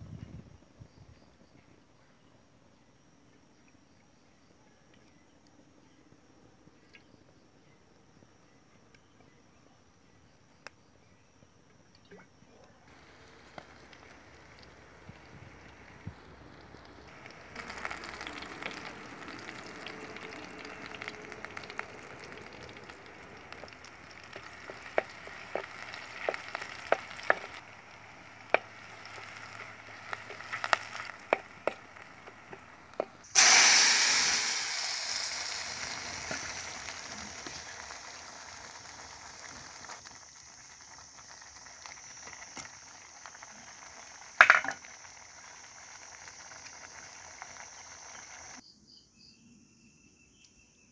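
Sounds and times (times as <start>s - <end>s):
loud sizzle: 12.9s - 48.6s
onions frying in oil: 12.9s - 48.6s.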